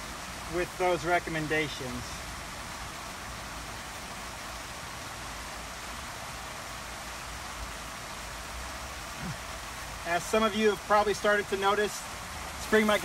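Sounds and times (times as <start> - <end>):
steady background hiss: 0.0 - 13.0.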